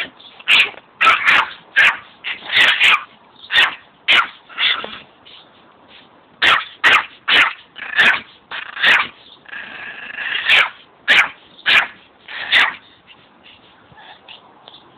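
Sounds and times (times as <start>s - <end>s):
dog whining bark: 0.0s - 4.9s, 6.4s - 9.2s, 10.3s - 12.8s
small dog yapping: 0.0s - 5.0s, 6.4s - 9.2s, 10.3s - 12.8s.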